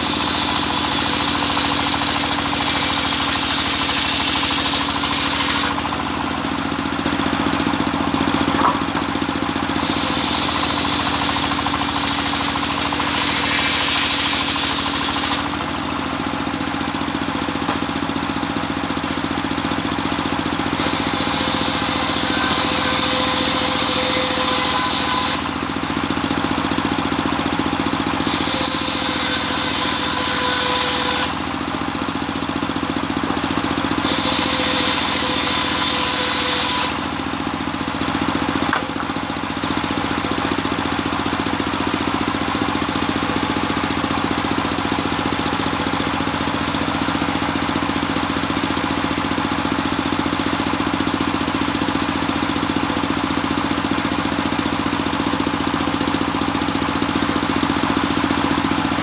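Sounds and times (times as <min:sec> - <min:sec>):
saw blade cutting timber: 0:00.0 - 0:16.4, 0:20.5 - 0:26.5, 0:27.8 - 0:31.9, 0:33.5 - 0:39.2
saw bench engine running: 0:00.0 - 0:59.0.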